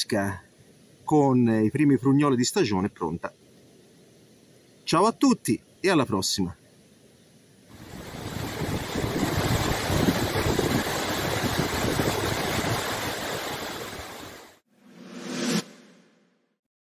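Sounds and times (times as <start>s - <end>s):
waterfall rushing over rocks: 7.7s - 14.6s.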